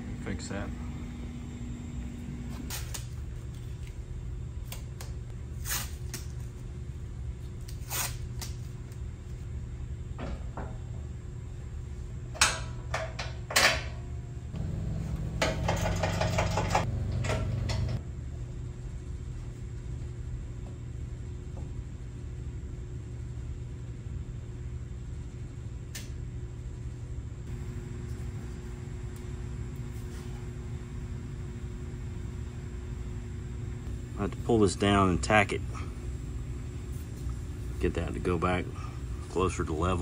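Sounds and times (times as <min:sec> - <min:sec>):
steady low hum: 0:00.0 - 0:40.0
knocks and clunks of steel bumper: 0:14.6 - 0:18.0
metal rattling: 0:14.6 - 0:18.0.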